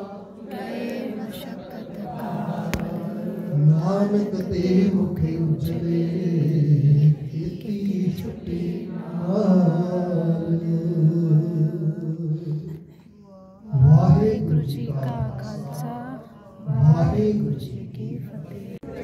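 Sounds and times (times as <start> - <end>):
man chanting: 13.3 - 18.5.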